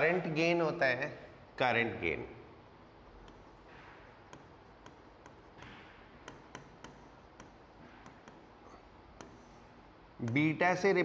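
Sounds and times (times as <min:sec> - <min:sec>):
scratchy writing on a board: 0:03.1 - 0:10.6.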